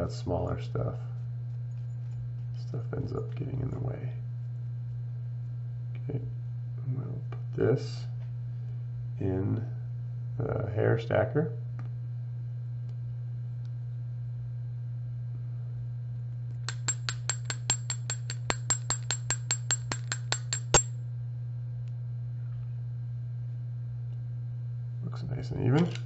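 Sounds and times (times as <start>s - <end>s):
low hum: 11.5s - 26.0s.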